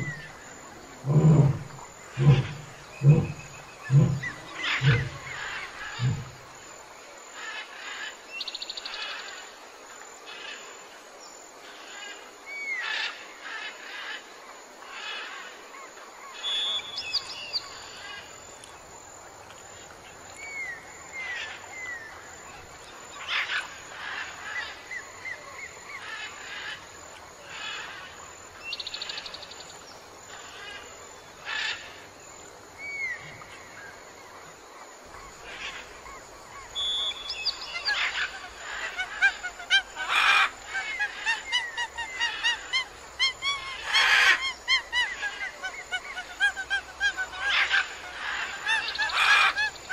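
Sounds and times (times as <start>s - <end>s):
birds chirping: 0.0s - 6.4s, 36.6s - 49.9s
honking calls: 1.0s - 6.3s.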